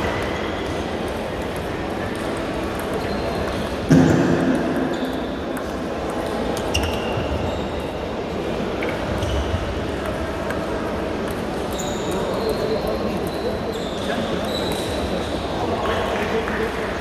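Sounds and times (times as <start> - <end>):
background hubbub: 0.0 - 17.0
table tennis balls clicking: 1.4 - 3.8.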